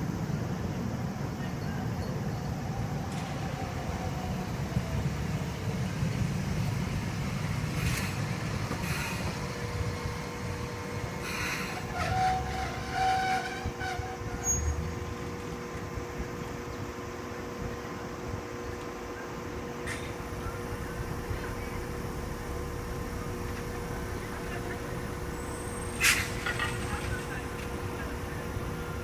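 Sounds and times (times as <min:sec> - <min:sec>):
streetcar wheels rumbling and rattling: 0:00.0 - 0:29.0
tram hum: 0:00.0 - 0:29.0
streetcar brake squeal: 0:07.7 - 0:10.0, 0:10.6 - 0:15.1, 0:19.8 - 0:29.0.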